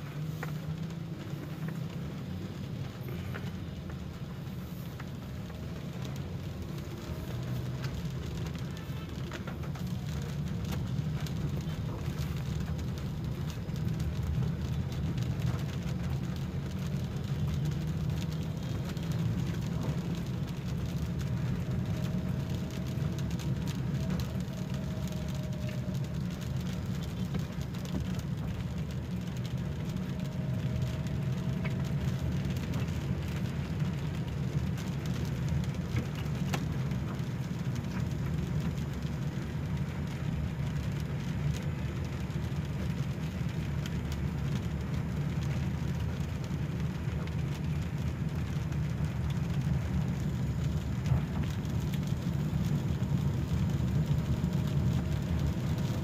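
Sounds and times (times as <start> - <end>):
car engine and tyres on wet road: 0.0 - 56.0
rain ticking on windscreen: 0.0 - 56.0.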